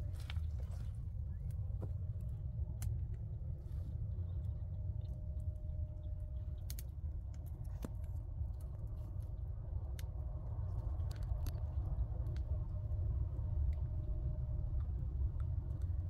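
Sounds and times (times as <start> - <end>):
wind rumble on microphone: 0.0 - 16.0.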